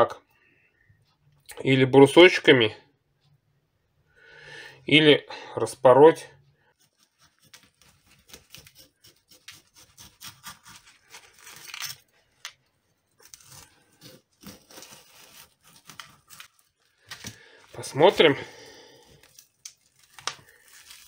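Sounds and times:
knife cutting fish skin: 0:06.7 - 0:12.1, 0:13.2 - 0:17.4.

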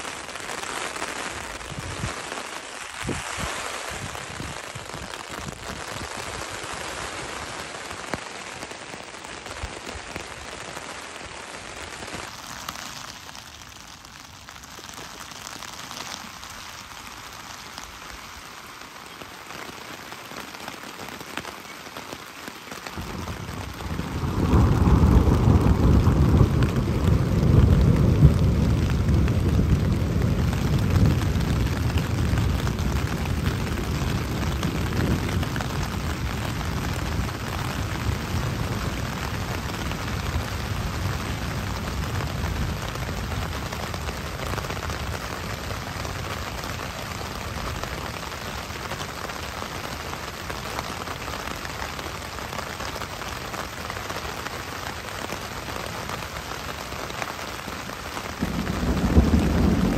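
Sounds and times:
heavy rain on a tarp: 0:00.0 - 0:59.9
thunder rumble: 0:22.9 - 0:47.6, 0:58.3 - 0:59.9.

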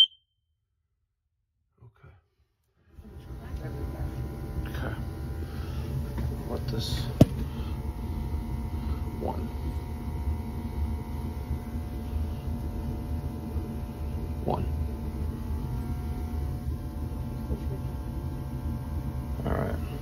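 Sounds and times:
boiler rumbling and humming: 0:02.8 - 0:20.0.

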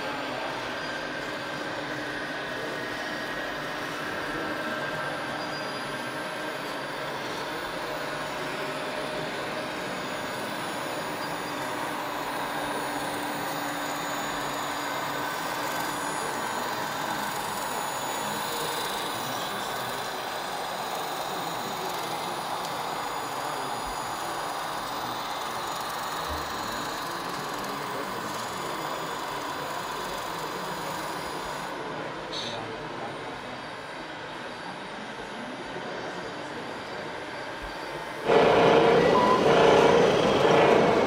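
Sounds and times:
small electric motors whining: 0:00.0 - 0:32.5.

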